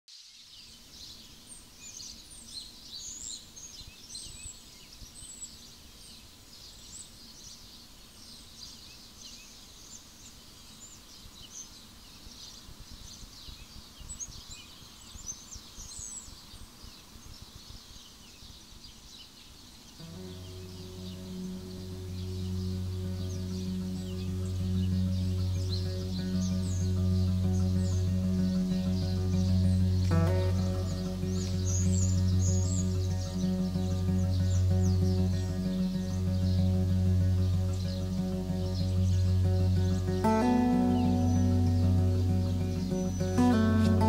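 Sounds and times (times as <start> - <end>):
birds chirping and singing: 19.2 - 44.0
low steady rumble: 20.0 - 44.0
low sustained musical tone: 20.0 - 44.0.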